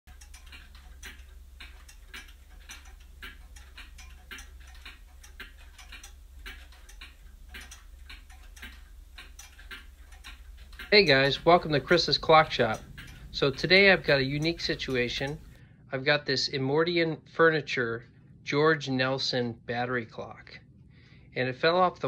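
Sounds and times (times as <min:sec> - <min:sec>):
clock ticking: 0:00.0 - 0:15.6.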